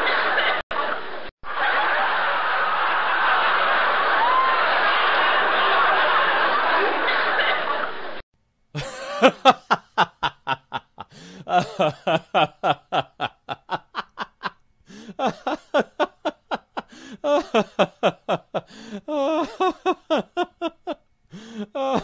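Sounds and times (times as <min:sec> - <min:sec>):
person laughing: 0:08.8 - 0:22.0.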